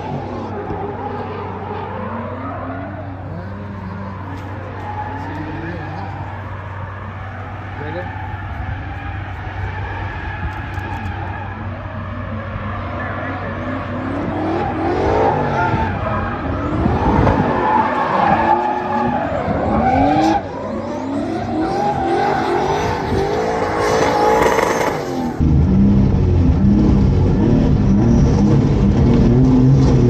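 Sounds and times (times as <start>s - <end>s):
car engines revving high: 0.0s - 30.0s
car engine running at low revs: 22.6s - 30.0s.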